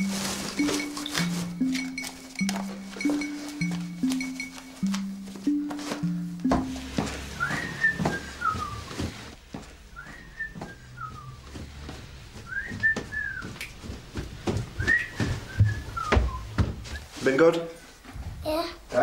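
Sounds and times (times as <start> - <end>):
knocks and clicks: 0.6 - 9.3
whistled phrase: 7.4 - 9.0, 10.0 - 11.5, 12.5 - 13.5, 14.8 - 17.1.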